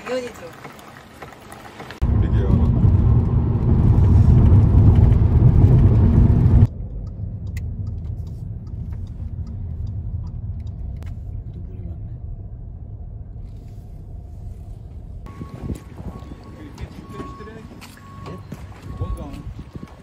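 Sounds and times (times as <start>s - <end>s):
car road noise rumble: 0.0s - 20.0s.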